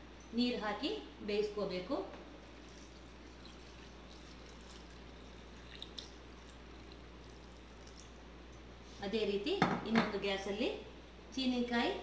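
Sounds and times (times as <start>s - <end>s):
water pouring into pot: 2.6s - 8.2s.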